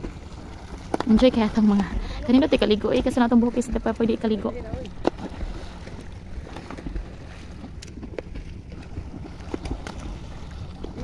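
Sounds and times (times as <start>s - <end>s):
water lapping around boat: 0.0s - 11.0s
sharp clicks or splashes: 5.0s - 11.0s.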